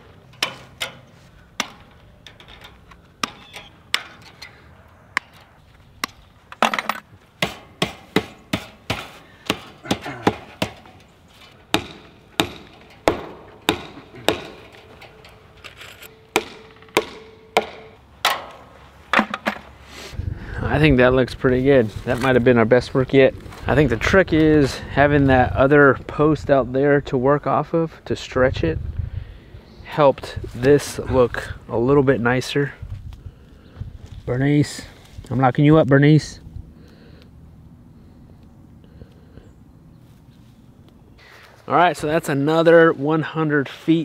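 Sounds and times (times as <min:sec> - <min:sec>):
hammer striking wooden post: 0:06.0 - 0:11.0, 0:11.7 - 0:15.0, 0:16.1 - 0:19.7.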